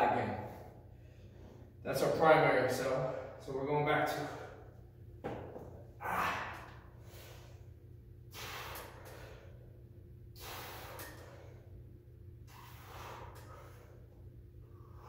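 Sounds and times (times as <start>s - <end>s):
faint steady hum: 0.0s - 15.0s
man breathing hard: 5.9s - 15.0s.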